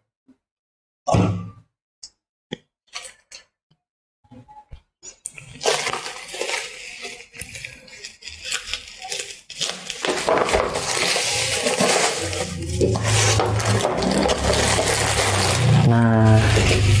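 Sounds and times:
bubble wrap crinkling: 5.3s - 17.0s.

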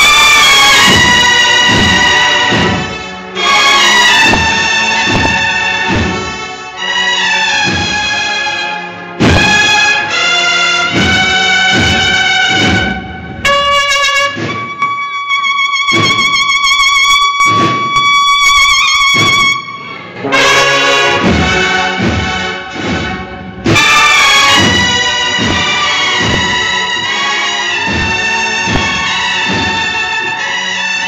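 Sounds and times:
drum strokes: 0.0s - 6.5s, 7.2s - 8.5s, 9.2s - 15.1s, 15.8s - 30.6s
brass chords: 0.0s - 31.0s
high held cornet note: 19.6s - 22.0s.

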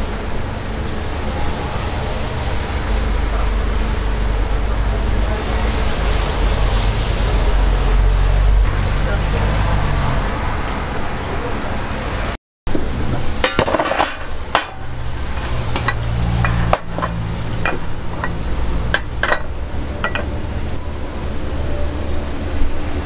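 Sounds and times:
metal tools clinking on molds: 15.4s - 20.3s.

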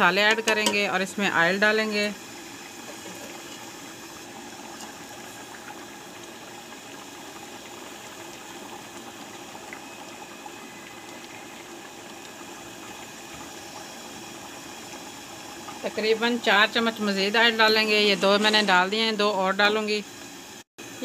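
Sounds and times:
pot of curry simmering: 2.2s - 16.8s.

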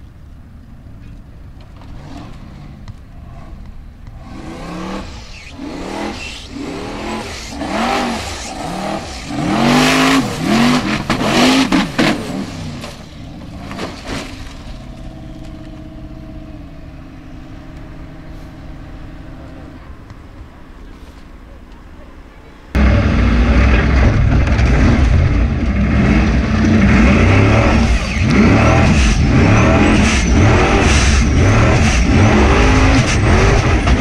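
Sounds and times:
buggy engine revving hard: 4.2s - 14.3s, 22.8s - 34.0s
engine idling: 22.8s - 34.0s.

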